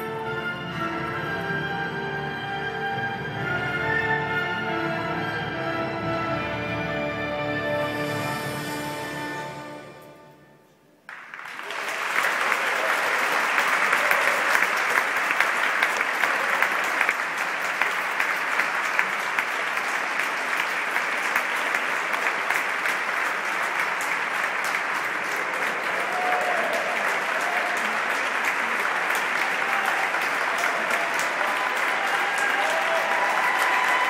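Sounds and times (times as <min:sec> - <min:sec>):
audience applauding: 0:11.1 - 0:34.0.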